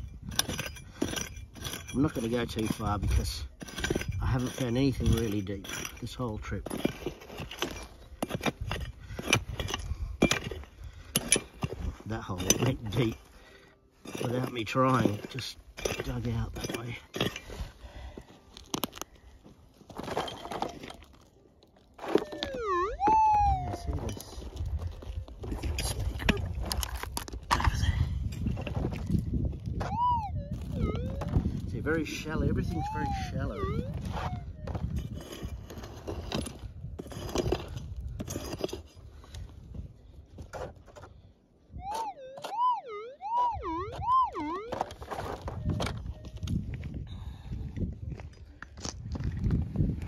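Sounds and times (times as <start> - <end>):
pick scraping gravelly soil: 0.0 - 22.6, 31.5 - 41.4
metal detector tone: 22.1 - 24.4, 29.8 - 35.6, 41.8 - 46.7.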